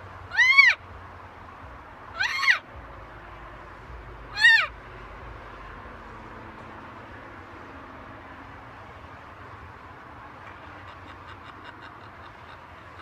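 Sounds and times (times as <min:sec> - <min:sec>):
macaw calls: 0:00.3 - 0:00.8, 0:02.2 - 0:02.6, 0:04.3 - 0:04.7.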